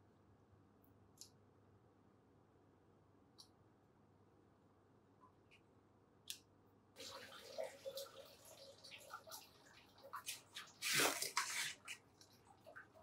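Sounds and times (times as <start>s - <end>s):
tap water running and splashing: 7.0s - 13.0s.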